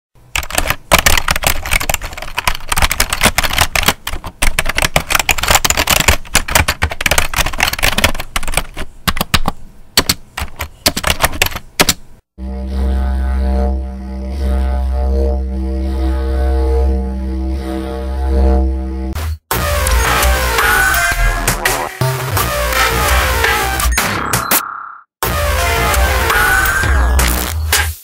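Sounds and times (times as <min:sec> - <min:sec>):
typewriter keys clacking: 0:00.3 - 0:12.0
low steady drone: 0:12.4 - 0:19.2.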